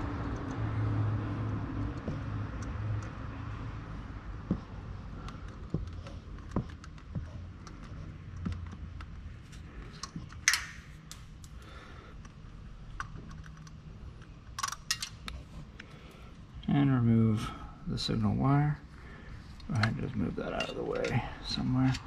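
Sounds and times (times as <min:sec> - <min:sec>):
small metal clicks and taps: 0:05.2 - 0:16.0, 0:19.6 - 0:21.2.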